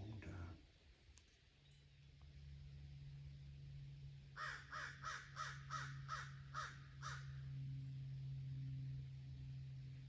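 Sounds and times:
steady low hum: 0.0 - 10.0
crow cawing: 4.4 - 7.5.

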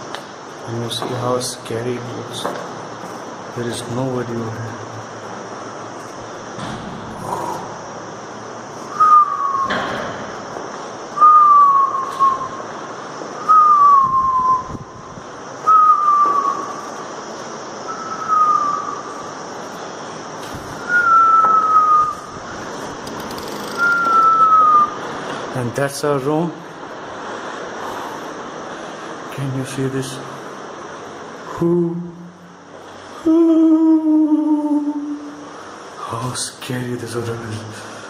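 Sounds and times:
thump: 6.6 - 7.2
whistled note sliding downward: 8.9 - 9.9, 13.4 - 14.8, 17.9 - 19.1, 20.8 - 22.4, 23.6 - 25.0.

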